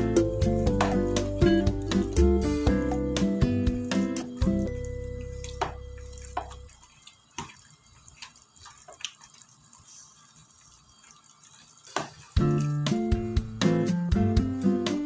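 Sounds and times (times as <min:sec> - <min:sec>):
guitar music: 0:00.0 - 0:06.0.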